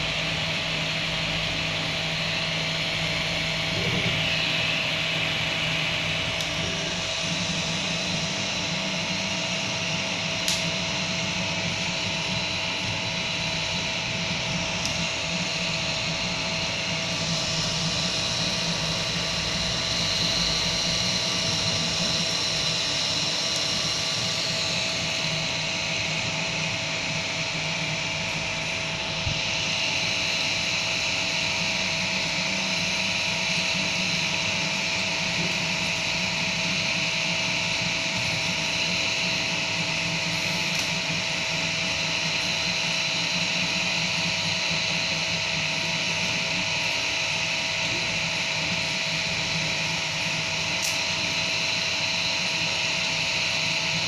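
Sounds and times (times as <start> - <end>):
stepper motors whining: 0.0 - 52.4
cooling fans whirring: 0.0 - 54.0.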